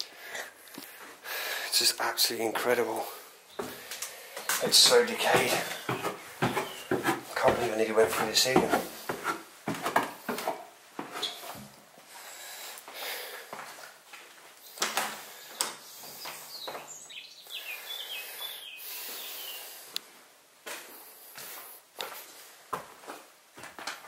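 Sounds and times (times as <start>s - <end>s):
floorboards creaking: 3.6s - 11.8s
footsteps on wooden floorboards: 3.6s - 11.8s, 13.5s - 17.0s, 20.7s - 24.0s
bird chirps: 4.4s - 7.0s, 15.8s - 19.7s.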